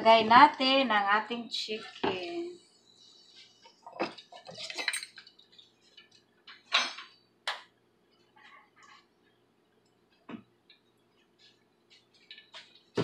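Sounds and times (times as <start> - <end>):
kitchenware clinking and knocking: 3.8 - 5.5, 6.5 - 7.6.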